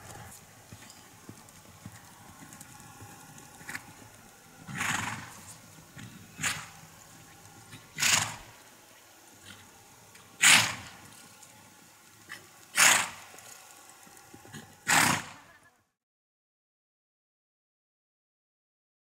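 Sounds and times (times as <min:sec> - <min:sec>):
horse snorting: 0:04.6 - 0:07.0, 0:07.7 - 0:08.6, 0:09.4 - 0:09.8, 0:10.4 - 0:11.1, 0:12.2 - 0:13.4, 0:14.4 - 0:15.4.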